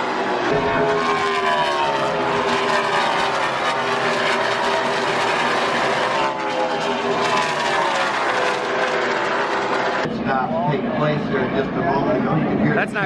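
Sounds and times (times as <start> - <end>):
race cars passing at speed: 0.0 - 10.4.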